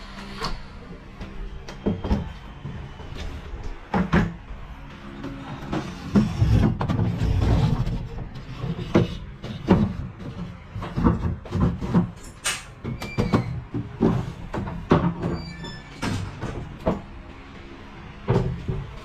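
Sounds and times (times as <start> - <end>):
wooden panels knocking and clacking: 5.6 - 15.4.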